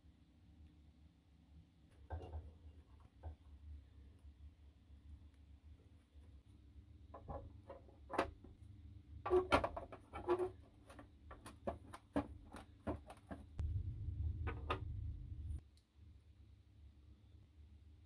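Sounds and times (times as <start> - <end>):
plastic parts clicking and tapping: 9.3 - 13.6
low steady hum: 13.5 - 18.0.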